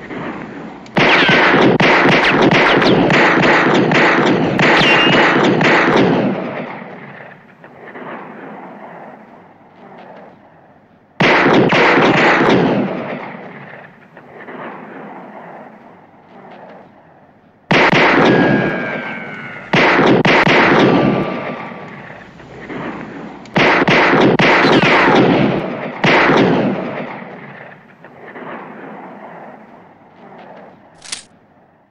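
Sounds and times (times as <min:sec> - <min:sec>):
pistol shots echoing: 0:00.0 - 0:09.2, 0:11.2 - 0:15.4, 0:17.7 - 0:22.4, 0:23.4 - 0:28.9.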